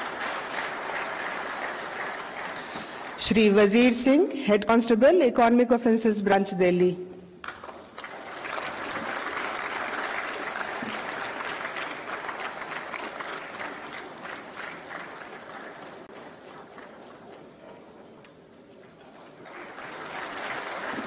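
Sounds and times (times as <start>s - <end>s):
audience applauding: 0.0s - 3.2s, 7.4s - 17.6s, 19.0s - 21.0s.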